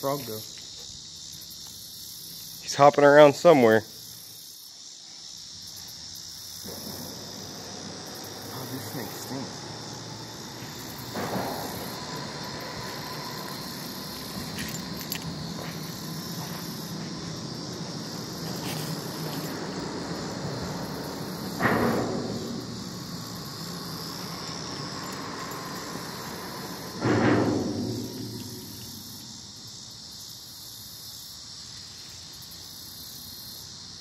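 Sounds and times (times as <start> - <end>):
high insect chorus: 0.0 - 34.0
low traffic drone: 5.8 - 31.2
vehicle rumble on bridge: 6.6 - 30.2.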